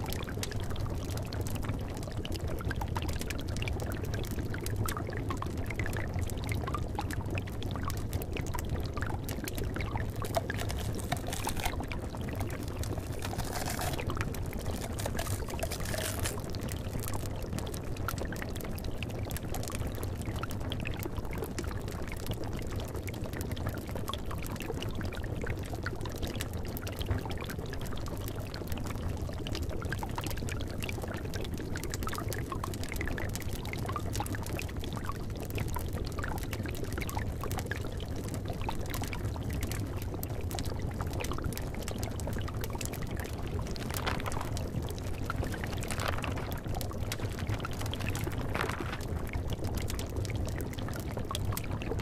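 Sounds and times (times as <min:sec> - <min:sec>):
liquid bubbling in cauldron: 0:00.0 - 0:52.0
fire pops and crackles: 0:07.8 - 0:21.8, 0:37.2 - 0:52.0.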